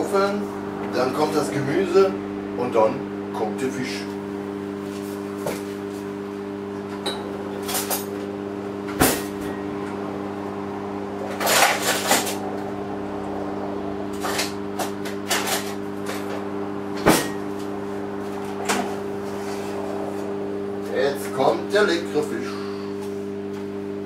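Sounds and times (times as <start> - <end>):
kitchen appliance humming: 0.0 - 24.0
utensils and dishes clattering: 11.4 - 12.4, 15.2 - 16.3.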